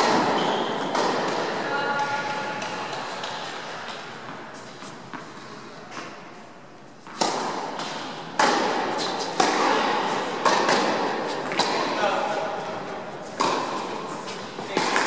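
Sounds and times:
tennis ball strikes and bounces: 0:07.1 - 0:12.1, 0:13.4 - 0:15.0.

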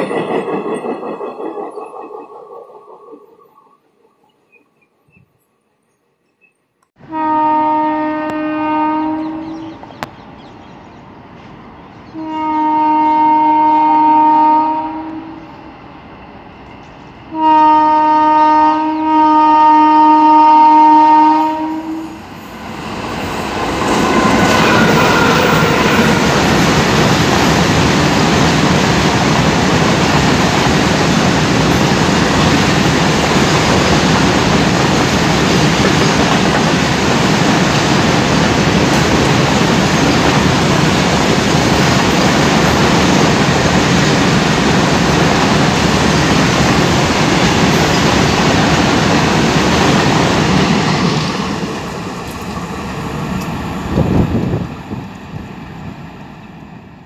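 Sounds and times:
train passing with rushing noise: 0:00.0 - 0:05.1, 0:07.0 - 0:57.0
locomotive horn blasts: 0:07.0 - 0:09.7, 0:12.2 - 0:15.5, 0:17.3 - 0:22.2.

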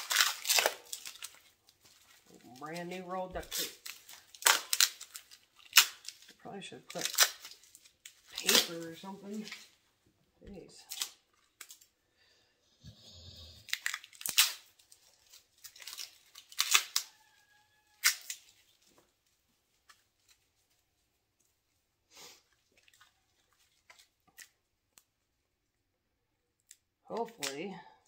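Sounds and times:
duct tape ripping and scratching: 0:00.0 - 0:01.5, 0:03.3 - 0:06.3, 0:06.9 - 0:09.7, 0:13.7 - 0:14.9, 0:15.6 - 0:17.2, 0:18.0 - 0:18.6.

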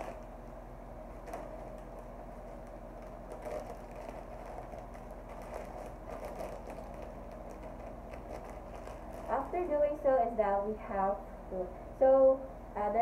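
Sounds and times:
plastic bag crinkling: 0:00.0 - 0:00.3, 0:01.2 - 0:09.7
steady low hum: 0:00.0 - 0:13.0.

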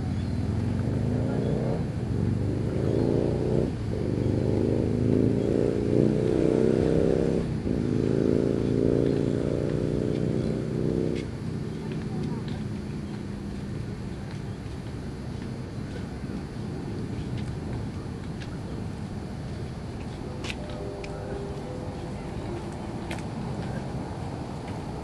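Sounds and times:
vehicle engine accelerating: 0:00.0 - 0:25.0.

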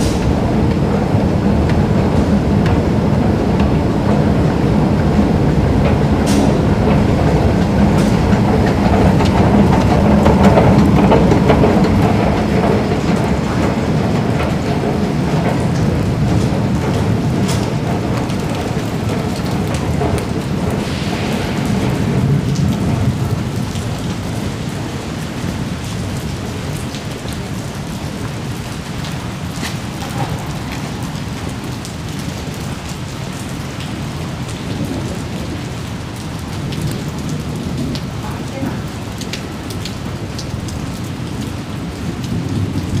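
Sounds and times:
low rumble: 0:00.0 - 0:24.8
steady rain: 0:00.0 - 0:43.0.

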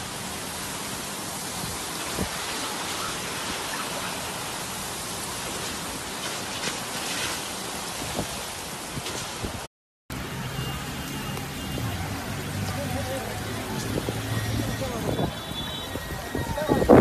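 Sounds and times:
heavy rain on a wet street: 0:00.0 - 0:17.0.

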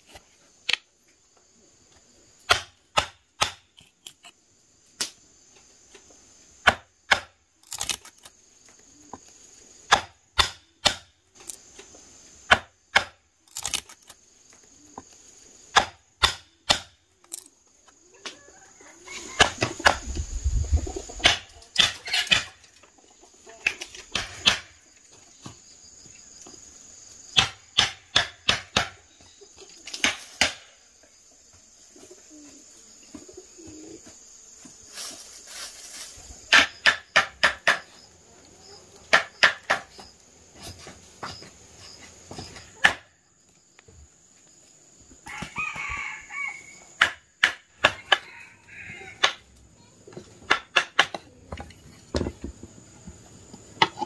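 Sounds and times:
sharp chopping strokes: 0:02.4 - 0:04.4, 0:05.9 - 0:08.3, 0:09.8 - 0:14.2, 0:15.7 - 0:17.5, 0:23.9 - 0:24.8, 0:27.3 - 0:29.0, 0:29.9 - 0:30.8, 0:34.9 - 0:38.0, 0:39.1 - 0:41.4.

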